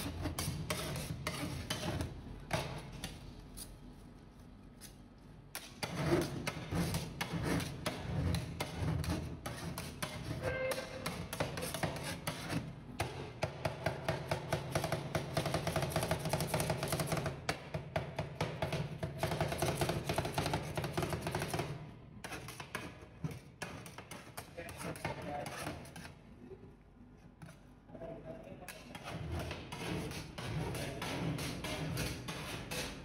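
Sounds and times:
metal spatulas chopping on steel pan: 5.6 - 26.0, 28.7 - 33.0.

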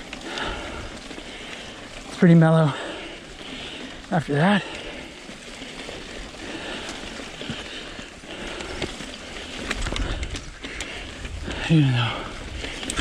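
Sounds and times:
bike clicks and rattles: 0.0 - 13.0
bike tyre and wind noise: 0.0 - 13.0.

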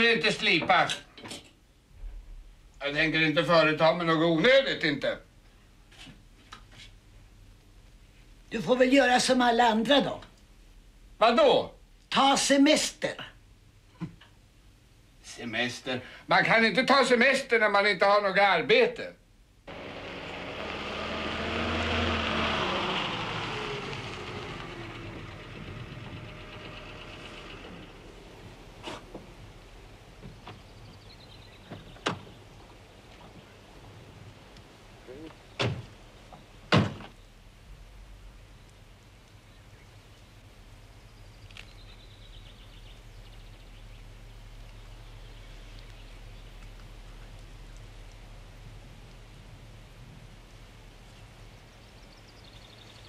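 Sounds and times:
low steady hum: 19.2 - 53.0
car engine running: 19.7 - 30.2
tyres on gravel: 19.7 - 31.0
songbird trill: 24.5 - 33.6, 38.5 - 48.0, 51.0 - 53.0.

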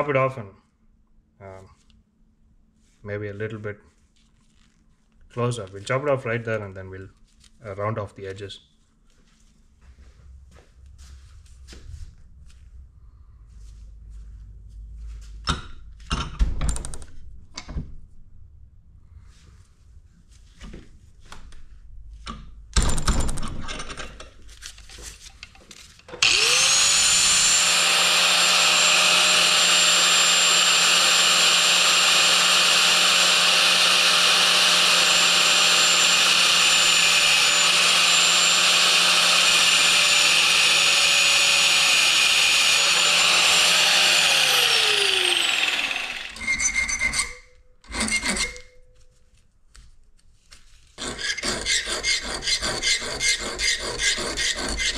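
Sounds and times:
angle grinder cutting metal: 26.1 - 48.7, 51.0 - 54.9.

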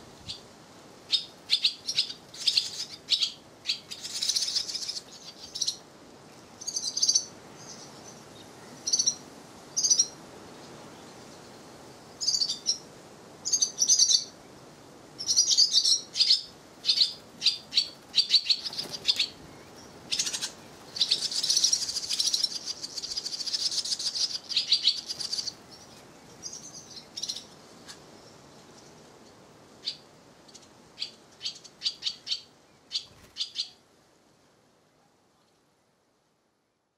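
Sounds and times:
nestlings chirping: 1.1 - 5.8, 15.2 - 27.5, 29.8 - 33.8.

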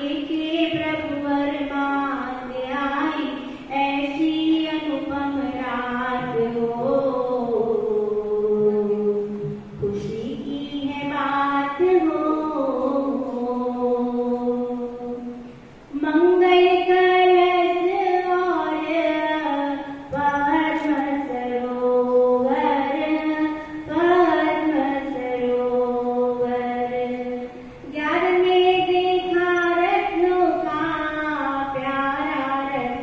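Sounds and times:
women singing a devotional chant: 0.0 - 33.0.

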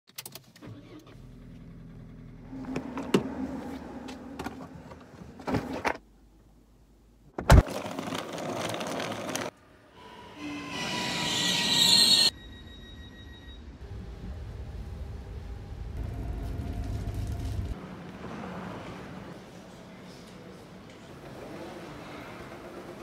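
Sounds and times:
train approaching: 9.8 - 17.8.

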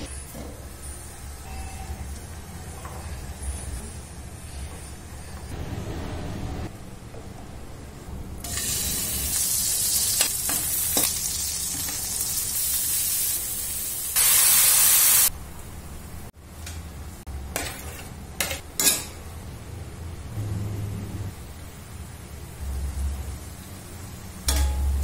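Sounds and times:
vegetables sizzling in a wok: 8.4 - 15.3, 21.4 - 25.0
spatula scraping a wok: 17.5 - 19.0.

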